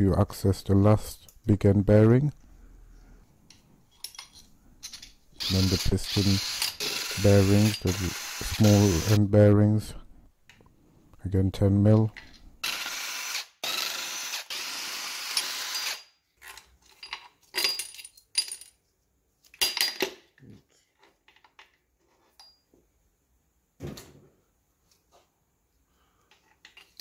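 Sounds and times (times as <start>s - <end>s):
metal clinks and knocks: 3.9s - 5.2s, 16.4s - 18.8s, 21.0s - 22.7s
power tool spinning bolts: 5.4s - 9.2s, 12.6s - 16.1s.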